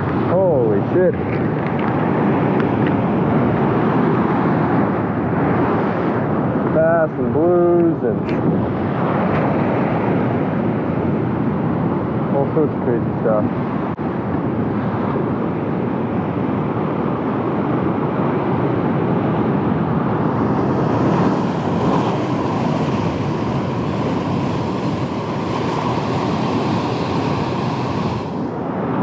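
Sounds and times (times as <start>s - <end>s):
wind buffeting microphone: 0.0s - 29.0s
wind rushing: 0.0s - 29.0s
surf breaking: 20.0s - 28.6s.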